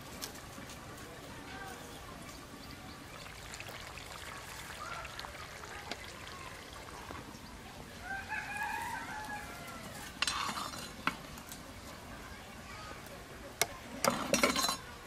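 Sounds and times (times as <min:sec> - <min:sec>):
rooster crowing: 0:08.0 - 0:10.1.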